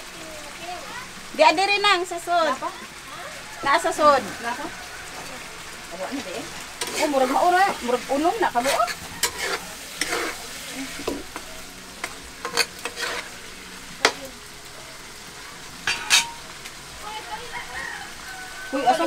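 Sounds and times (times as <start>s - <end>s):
food sizzling: 0.0s - 19.0s
metal spatula scraping wok: 4.7s - 11.4s, 12.0s - 13.5s, 15.9s - 16.5s
spatula clinking against pan: 8.6s - 10.3s, 15.9s - 16.4s.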